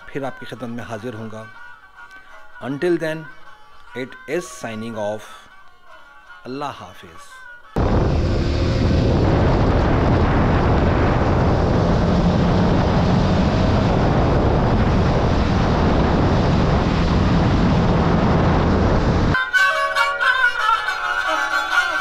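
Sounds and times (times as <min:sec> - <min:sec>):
wind rushing over microphone: 0:07.8 - 0:19.4.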